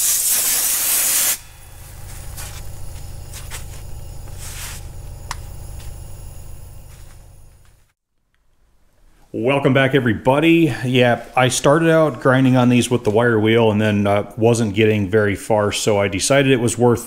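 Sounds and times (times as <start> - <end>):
sandblaster hiss: 0.0 - 7.9
steady low hum: 1.0 - 7.9.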